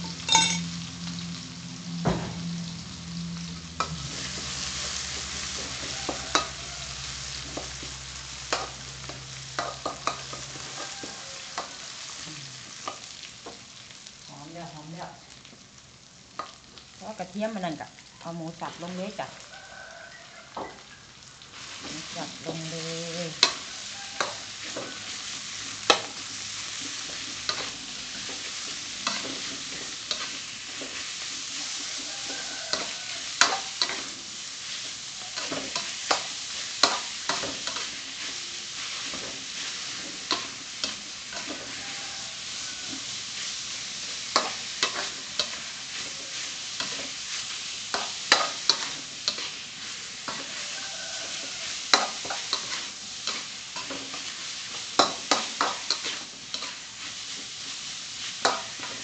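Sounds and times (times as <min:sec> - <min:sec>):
meat sizzling in a wok: 0:00.0 - 0:59.0
metal spatula scraping a wok: 0:03.8 - 0:12.1, 0:21.6 - 0:59.0.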